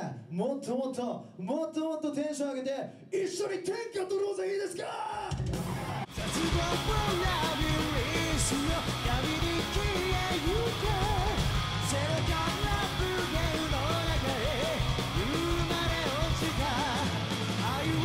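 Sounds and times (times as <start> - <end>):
live rock band playing: 5.3 - 18.0
vocalist singing: 6.1 - 18.0.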